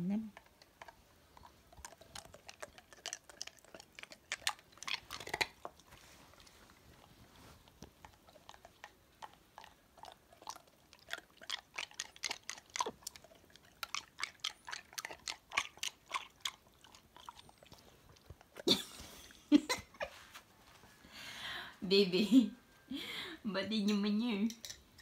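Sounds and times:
dog crunching ice cubes: 0:00.4 - 0:06.1, 0:08.0 - 0:17.8.

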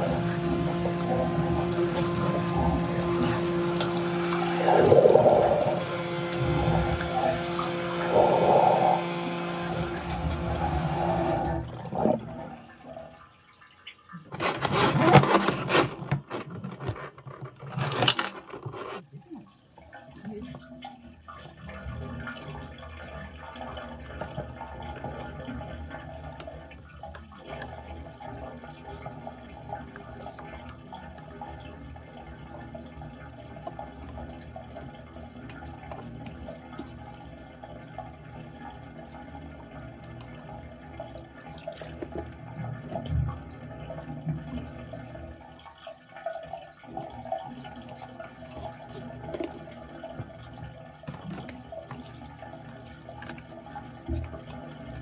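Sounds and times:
machine hum: 0:00.0 - 0:12.7
water rushing through drain pipe: 0:00.0 - 0:55.0.

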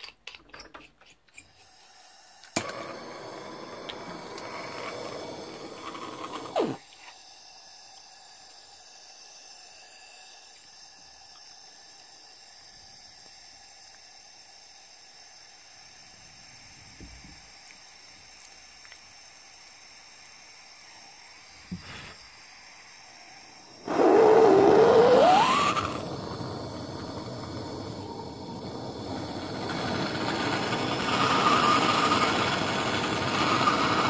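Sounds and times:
gas torch flame hissing: 0:01.5 - 0:34.0
gas torch pop: 0:06.4 - 0:06.8
click: 0:18.4 - 0:19.0.

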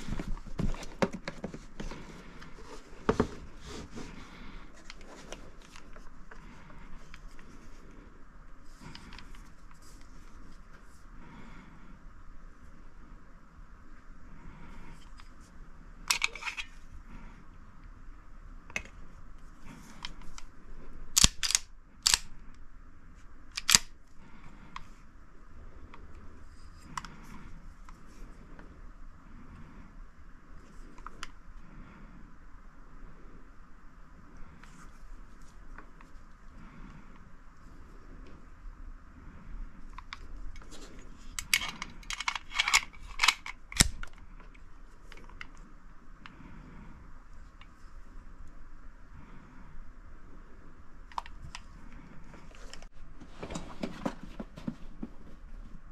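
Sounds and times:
pistol and case clicks and clacks: 0:41.4 - 0:44.2.

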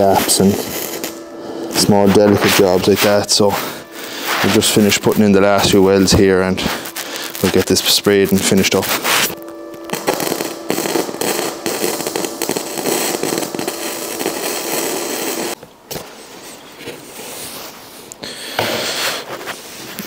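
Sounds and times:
welder arc crackling and spitting: 0:00.0 - 0:15.6.

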